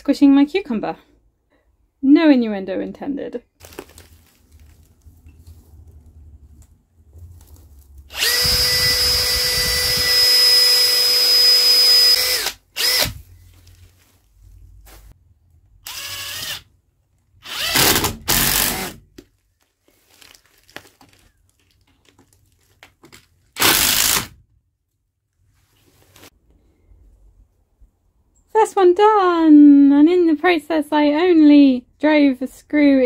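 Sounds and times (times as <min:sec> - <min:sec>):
cordless drill drilling wood: 0:08.1 - 0:13.2, 0:15.8 - 0:16.7, 0:17.4 - 0:19.0, 0:23.6 - 0:24.4
power tool bursts: 0:17.4 - 0:19.0, 0:23.6 - 0:24.4.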